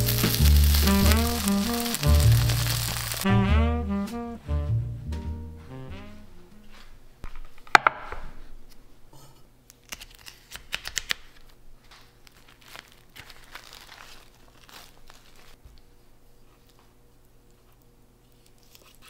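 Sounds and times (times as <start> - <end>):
knife slitting plastic wrap: 0.0 - 3.3, 12.2 - 15.6
plastic wrap crinkling and tearing: 0.0 - 3.3, 9.8 - 15.6.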